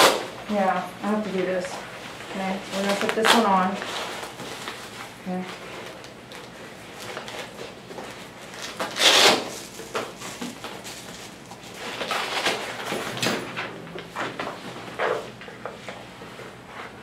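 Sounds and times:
fabric dog cone rubbing and scraping: 9.0s - 9.6s.

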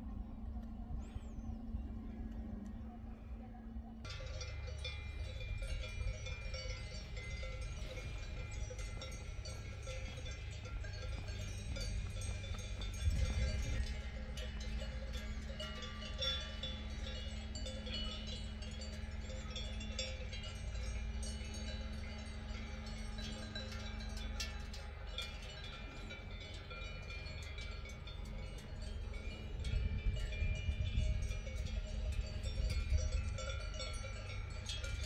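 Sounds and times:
steady low rumble: 0.0s - 35.0s
cowbells clanking: 4.0s - 35.0s.

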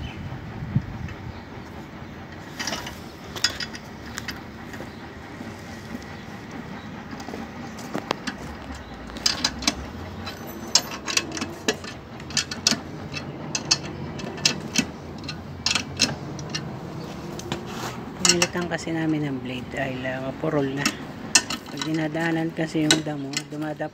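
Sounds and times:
ratchet wrench clicking: 8.3s - 16.7s
small metallic clinks: 8.3s - 16.7s.

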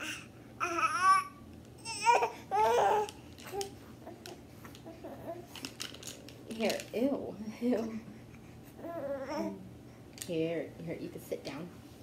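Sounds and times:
baby babbling and squealing: 0.0s - 3.1s.

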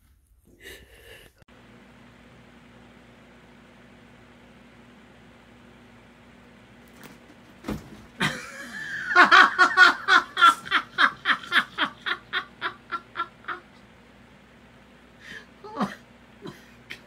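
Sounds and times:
person laughing hard: 8.2s - 13.8s, 15.4s - 17.0s.

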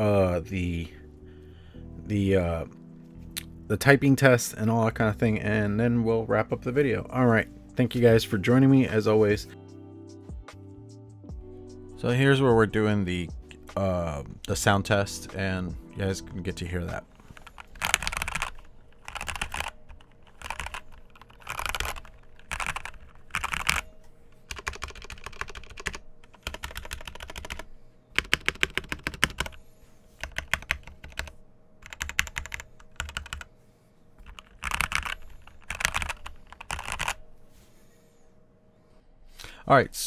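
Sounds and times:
typing on mechanical keyboard: 17.3s - 23.9s, 24.5s - 29.6s, 30.2s - 33.5s, 34.2s - 37.2s.

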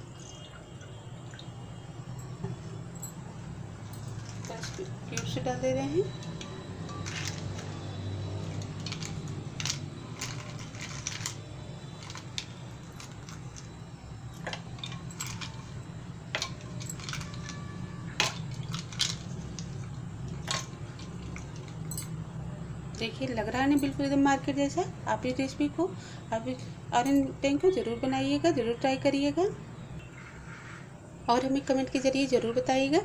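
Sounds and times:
ice cubes clinking in glass: 6.3s - 7.8s, 8.4s - 13.7s, 14.3s - 22.1s.

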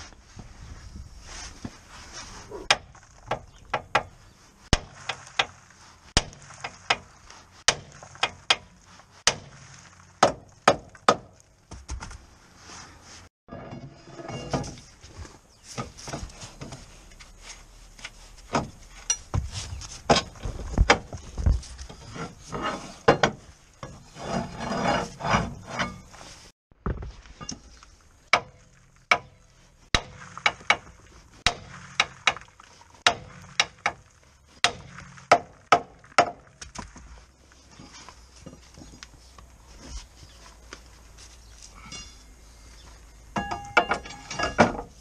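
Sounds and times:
metal scraping and rubbing: 12.6s - 26.5s.

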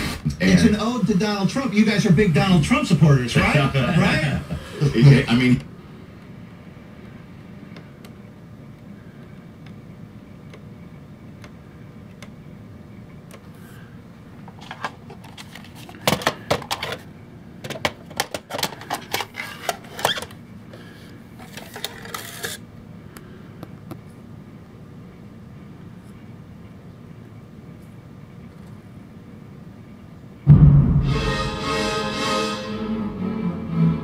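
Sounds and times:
low steady hum: 0.0s - 34.0s
plastic clicks and clatters: 14.4s - 20.4s, 21.4s - 22.6s.

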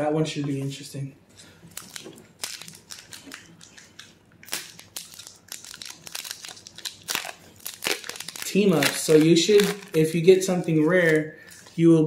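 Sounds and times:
foil wrapper crinkling: 1.7s - 11.2s.

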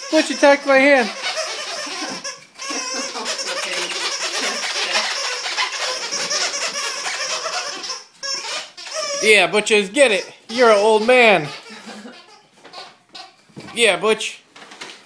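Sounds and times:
person laughing hard: 1.8s - 5.2s, 11.4s - 12.4s.

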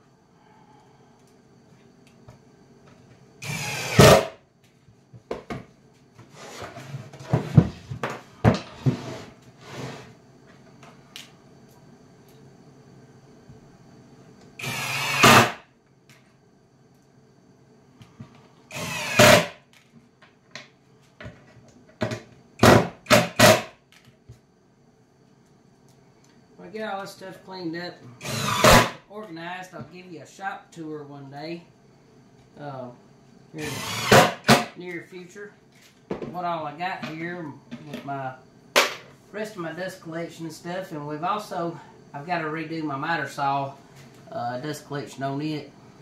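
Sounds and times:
cordless drill driving screws: 3.4s - 4.3s, 14.6s - 15.6s, 18.7s - 19.5s, 28.2s - 28.9s, 33.6s - 34.4s.

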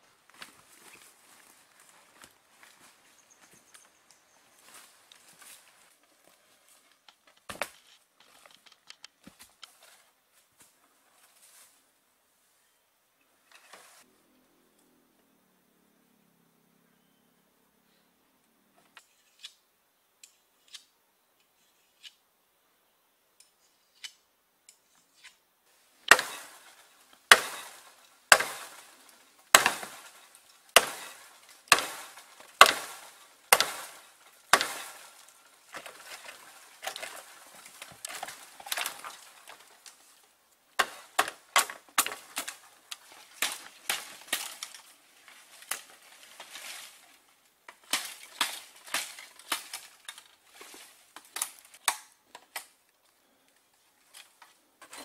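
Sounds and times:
machete chopping bamboo: 26.1s - 37.4s, 40.8s - 44.8s.

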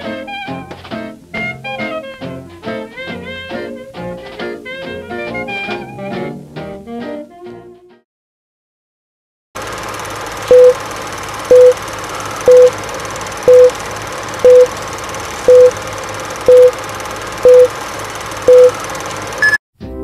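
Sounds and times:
short mid-pitched beeps: 10.5s - 10.8s, 11.5s - 11.8s, 12.4s - 12.8s, 13.5s - 13.8s, 14.4s - 14.7s, 15.5s - 15.8s, 16.5s - 16.8s, 17.4s - 17.7s, 18.5s - 18.8s, 19.4s - 19.6s.

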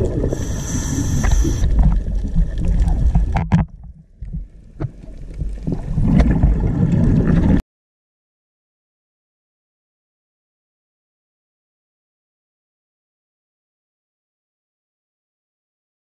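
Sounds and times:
muffled underwater rumble: 0.0s - 7.6s
water gurgling: 0.0s - 7.6s.

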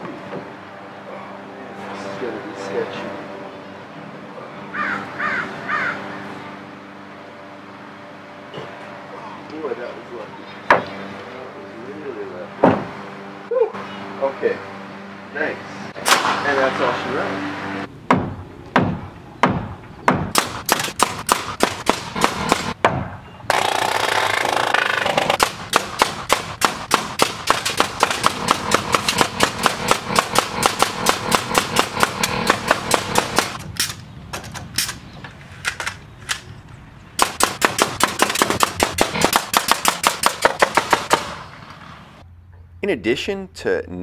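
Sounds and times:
steady background noise: 0.0s - 44.0s
nail gun firing: 16.0s - 16.4s, 18.1s - 22.8s, 23.5s - 34.0s, 37.2s - 41.4s.

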